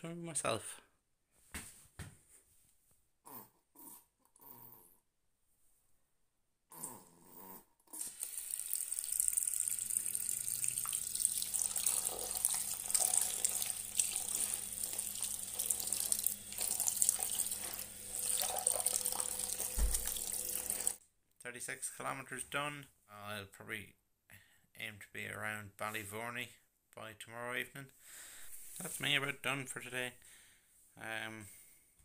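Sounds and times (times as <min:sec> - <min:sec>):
tap running into a sink: 0:10.6 - 0:21.0
hands rubbing clothes in water: 0:11.8 - 0:21.0.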